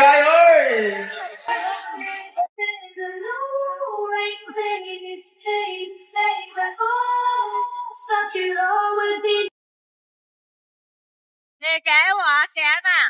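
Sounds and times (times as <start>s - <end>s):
woman singing unaccompanied: 1.5s - 9.5s.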